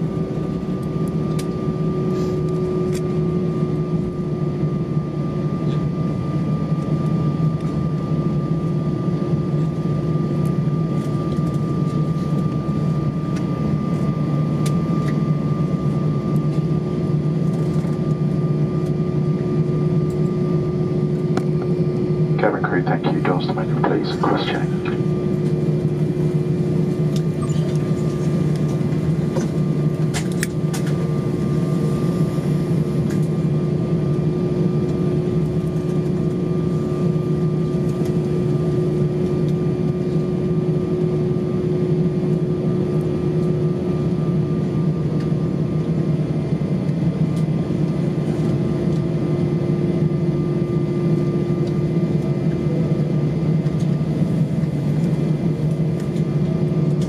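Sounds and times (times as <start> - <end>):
aircraft cabin drone: 0.0 - 57.0.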